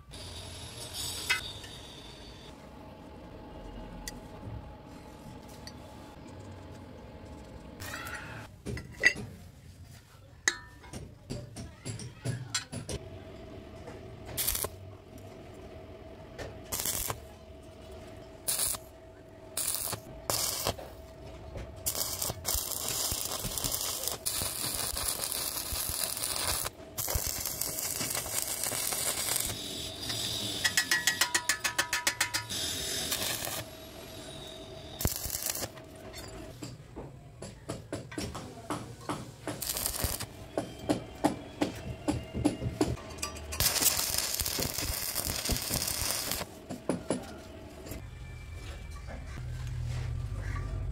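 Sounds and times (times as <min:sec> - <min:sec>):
arc welding crackle: 0:14.3 - 0:14.8, 0:16.6 - 0:17.3, 0:18.4 - 0:18.9, 0:19.6 - 0:21.0, 0:21.8 - 0:36.0, 0:39.5 - 0:40.4, 0:43.5 - 0:46.5
sharp metal taps: 0:30.7 - 0:32.5.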